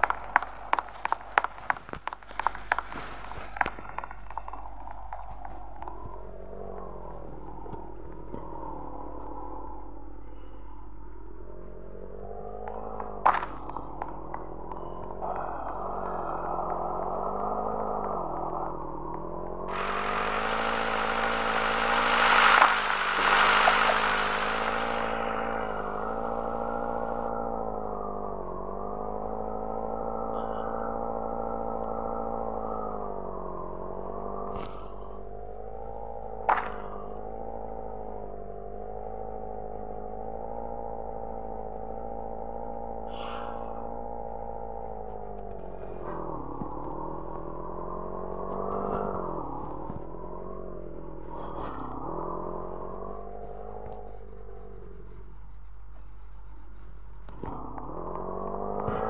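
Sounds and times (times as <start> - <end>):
vehicle engine running: 0.0 - 8.5, 13.0 - 34.8
loud rushing noise: 19.7 - 27.3.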